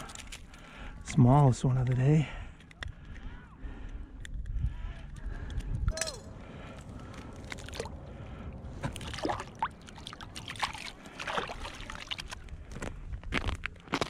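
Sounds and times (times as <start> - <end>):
low wind rumble: 0.0 - 14.0
water sloshing and dripping: 6.7 - 12.8.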